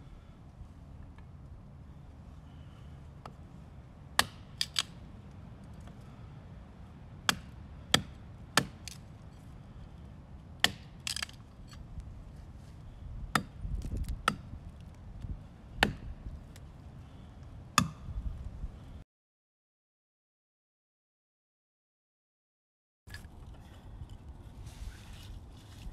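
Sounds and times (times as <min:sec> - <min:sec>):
knife chopping wood: 0:04.2 - 0:04.9, 0:07.2 - 0:09.0, 0:10.6 - 0:11.4, 0:13.3 - 0:14.5, 0:15.8 - 0:16.1, 0:17.8 - 0:18.0.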